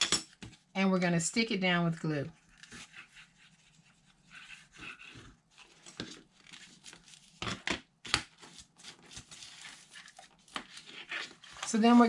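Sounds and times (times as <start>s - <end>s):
paper rustling and crinkling: 5.0s - 7.6s, 8.3s - 12.0s.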